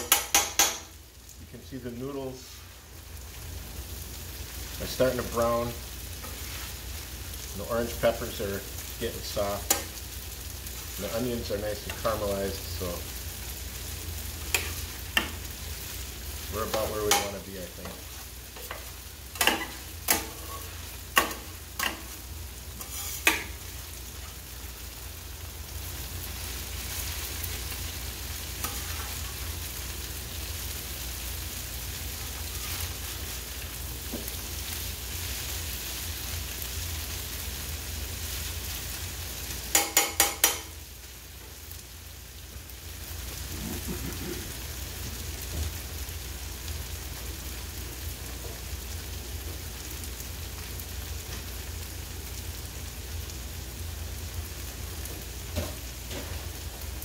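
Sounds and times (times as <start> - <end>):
metal spatula tapping a griddle: 0.0 - 0.9, 21.2 - 22.0, 39.7 - 40.7
food sizzling on a griddle: 0.0 - 57.0.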